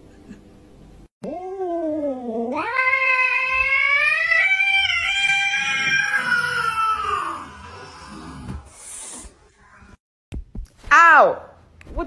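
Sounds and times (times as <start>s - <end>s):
cat yowling: 1.2s - 8.2s.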